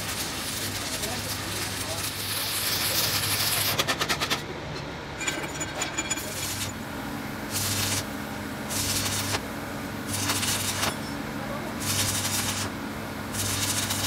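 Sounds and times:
wire brush scratching metal: 0.0 - 4.4, 5.2 - 6.8, 7.5 - 8.1, 8.7 - 9.4, 10.1 - 11.0, 11.8 - 14.0
arc welder crackling: 0.0 - 4.6, 6.2 - 14.0
low electrical hum: 0.0 - 14.0.

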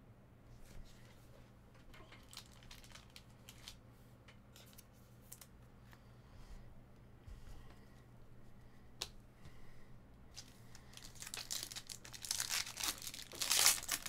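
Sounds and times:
low electrical hum: 0.0 - 14.0
trading cards crinkling: 2.1 - 3.8, 10.3 - 14.0.

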